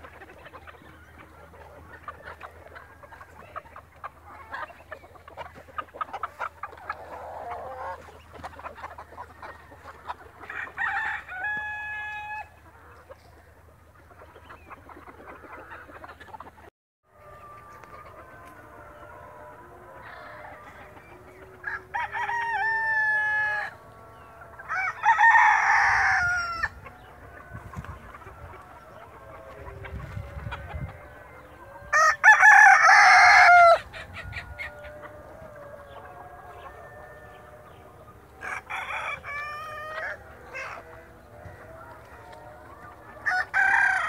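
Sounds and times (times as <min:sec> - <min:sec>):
roosters crowing: 0:00.0 - 0:13.2, 0:17.1 - 0:44.0
hens clucking softly: 0:00.0 - 0:24.7, 0:26.0 - 0:31.9, 0:33.4 - 0:44.0.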